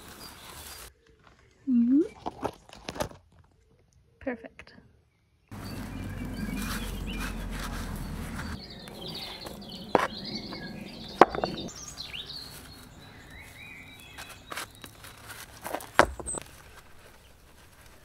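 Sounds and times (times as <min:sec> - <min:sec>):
small birds chirping: 0:05.0 - 0:18.0
stones knocking: 0:06.3 - 0:12.0, 0:14.0 - 0:17.0.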